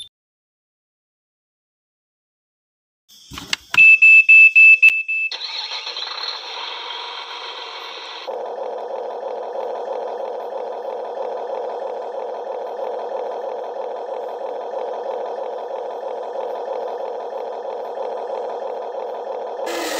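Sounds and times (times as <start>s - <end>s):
small electric motor whine: 5.4s - 19.9s.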